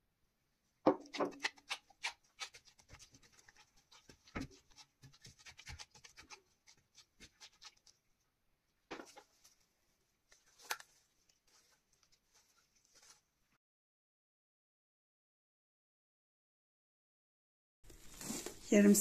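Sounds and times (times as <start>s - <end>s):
dough squelching: 0.9s - 13.6s.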